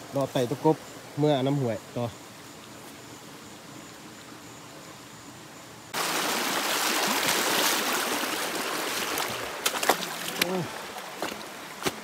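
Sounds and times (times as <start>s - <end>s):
high insect tone: 0.0s - 12.0s
stream rushing: 6.0s - 12.0s.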